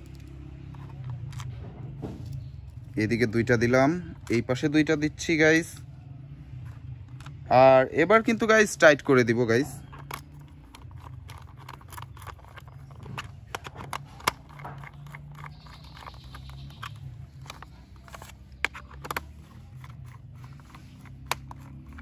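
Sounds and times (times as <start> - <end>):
plastic clicks and taps: 9.9 - 22.0.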